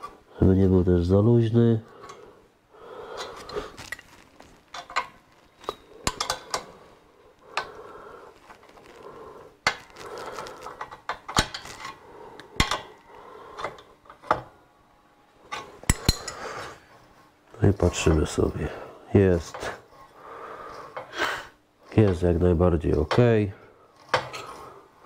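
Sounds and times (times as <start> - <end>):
wrench clinking on metal: 15.8 - 16.4.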